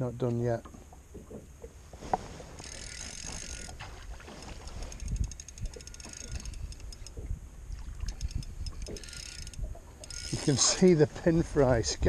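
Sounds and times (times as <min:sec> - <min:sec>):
water against boat: 0:00.0 - 0:12.0
fly reel drag clicking: 0:02.6 - 0:03.8, 0:04.4 - 0:07.2, 0:07.8 - 0:10.8
wind on microphone: 0:03.2 - 0:12.0.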